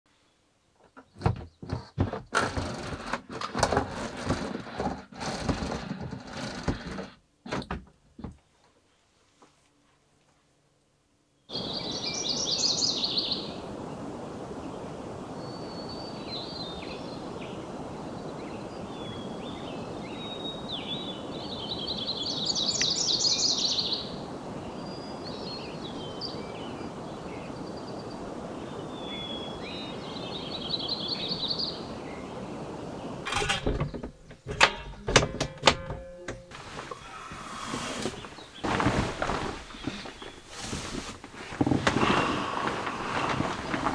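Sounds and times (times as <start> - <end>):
roof vent knocks and clicks: 0.8 - 8.5, 33.3 - 37.0
songbirds singing: 11.3 - 34.1, 36.7 - 40.9.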